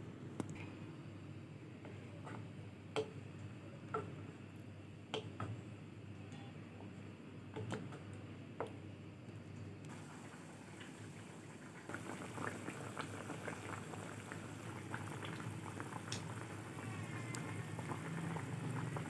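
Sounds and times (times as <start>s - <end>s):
gravy bubbling in a pan: 9.9s - 19.0s.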